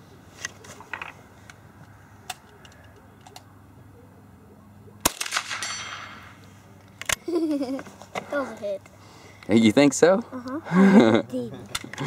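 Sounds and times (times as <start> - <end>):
rifle shot crack: 5.0 - 6.4
distant steel plate ringing: 5.3 - 6.4.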